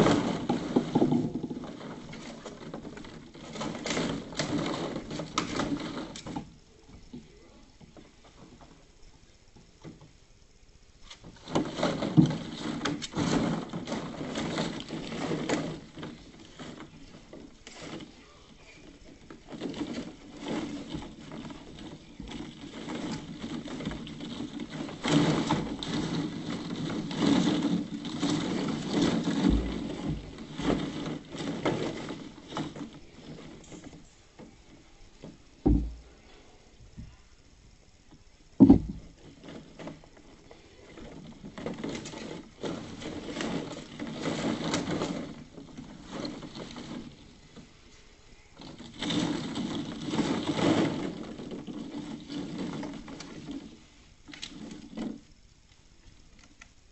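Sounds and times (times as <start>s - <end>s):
plastic balls rattling: 0.0s - 8.8s, 11.1s - 36.2s, 37.6s - 56.9s
low thump: 35.6s - 36.1s.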